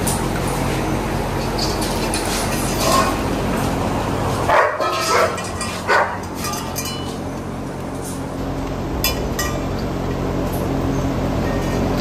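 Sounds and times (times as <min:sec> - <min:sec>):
steady low hum: 0:00.0 - 0:12.0
dog barking: 0:04.5 - 0:06.2.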